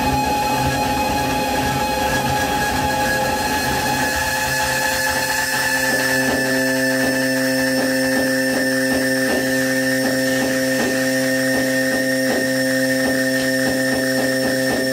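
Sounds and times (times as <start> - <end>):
electronic droning tones: 0.0 - 14.9
regular clicking pulse: 4.8 - 14.9.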